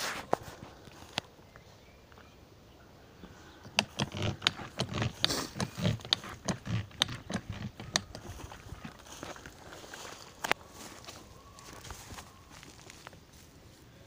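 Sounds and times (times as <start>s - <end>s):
footsteps through plants: 0.0s - 1.3s, 5.1s - 14.0s
leaves rustling and crackling: 0.0s - 1.4s, 7.4s - 14.0s
sharp clicks and low thuds: 3.6s - 9.0s.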